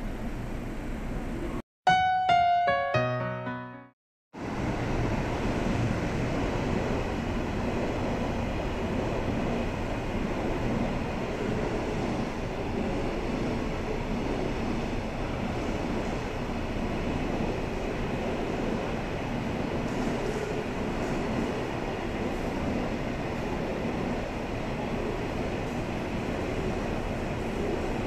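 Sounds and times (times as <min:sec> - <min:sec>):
piano jingle: 0:01.9 - 0:04.0
electric train rumbling: 0:04.4 - 0:28.0.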